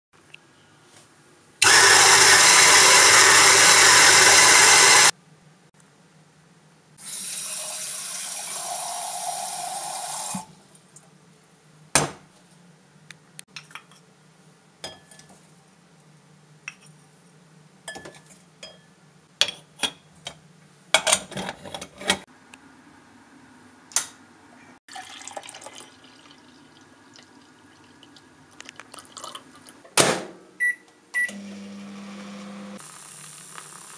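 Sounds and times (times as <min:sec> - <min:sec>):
electric coffee grinder: 0:01.6 - 0:05.1, 0:31.3 - 0:33.9.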